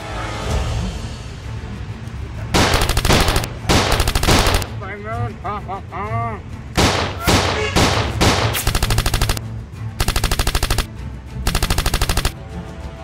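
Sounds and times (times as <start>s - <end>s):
automatic gunfire bursts: 2.6s - 4.7s, 6.8s - 9.4s, 10.0s - 10.9s, 11.5s - 12.4s
heavy single gunshots: 6.8s - 8.7s.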